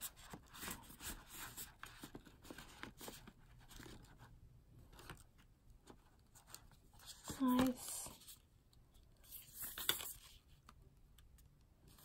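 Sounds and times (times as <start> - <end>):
paper rustling: 9.2 - 10.6.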